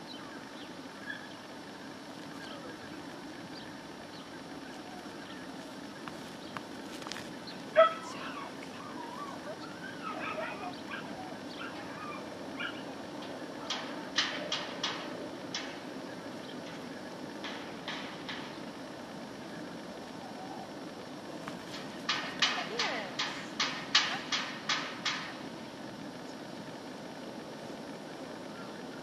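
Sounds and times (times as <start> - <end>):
dog barking: 7.8 - 8.5, 10.0 - 12.9
dog whining and yipping: 7.8 - 12.9.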